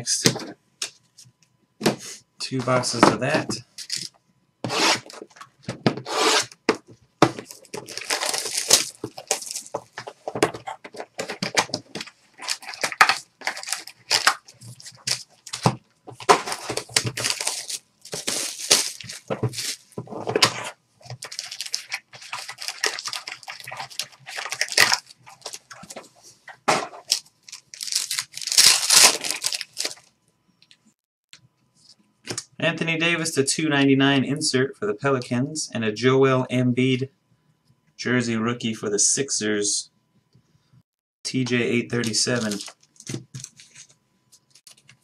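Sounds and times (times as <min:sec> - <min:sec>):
foil packs tearing and crinkling: 0:03.8 - 0:04.1, 0:07.4 - 0:20.0, 0:21.0 - 0:26.0, 0:27.0 - 0:30.1, 0:42.0 - 0:43.9.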